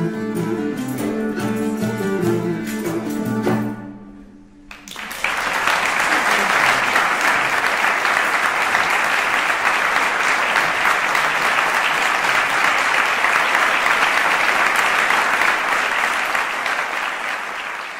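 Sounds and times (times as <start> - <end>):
audience applauding: 4.7 - 17.9.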